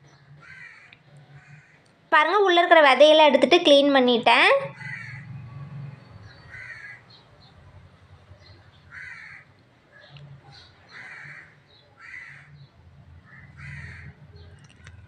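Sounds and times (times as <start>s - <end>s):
crow cawing: 0.4s - 1.9s, 4.7s - 5.3s, 6.4s - 7.2s, 8.9s - 10.1s, 10.9s - 12.6s, 13.2s - 14.2s.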